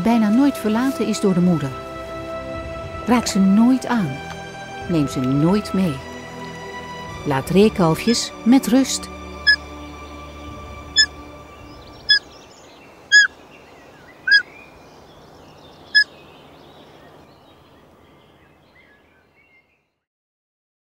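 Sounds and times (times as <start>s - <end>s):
background music: 0.0s - 12.4s
bird twittering: 9.3s - 9.7s, 10.9s - 19.8s
clear high bird call: 9.3s - 9.7s, 10.9s - 13.4s, 14.1s - 14.7s, 15.9s - 16.2s.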